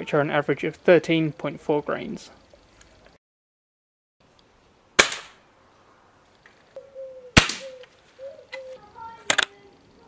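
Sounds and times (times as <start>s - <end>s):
air rifle shots: 5.0s - 5.4s, 7.4s - 7.8s.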